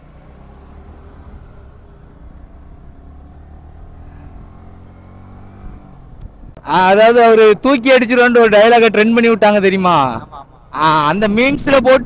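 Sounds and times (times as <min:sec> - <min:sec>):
engine running at low revs: 0:00.0 - 0:06.6.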